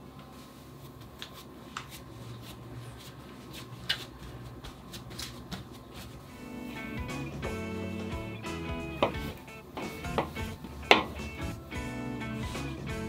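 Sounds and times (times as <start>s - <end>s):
hands pressing bread dough: 0.9s - 6.3s, 9.0s - 11.4s.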